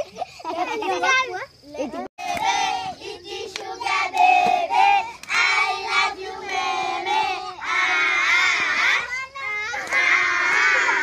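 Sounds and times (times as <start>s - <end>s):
children singing together: 2.2s - 11.0s.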